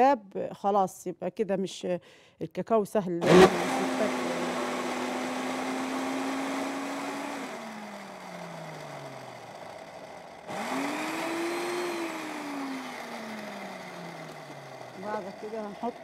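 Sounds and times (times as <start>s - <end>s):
blender motor hum: 3.2s - 16.0s.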